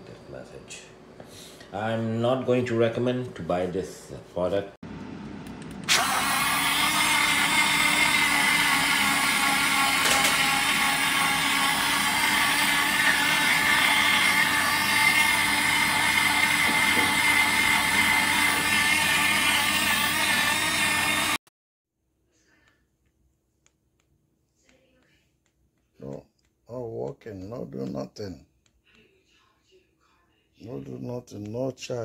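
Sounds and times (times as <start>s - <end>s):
blender motor whine: 5.8s - 21.5s.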